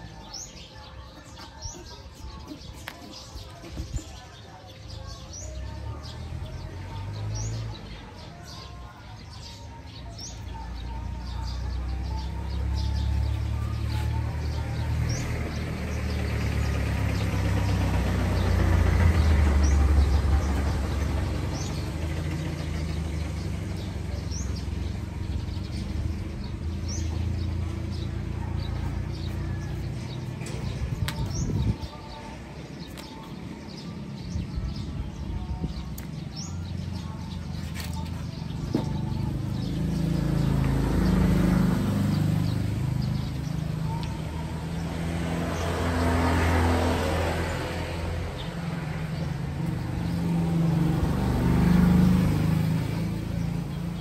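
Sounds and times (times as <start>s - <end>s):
road traffic rumble: 0.0s - 54.0s
small birds chirping: 0.0s - 54.0s.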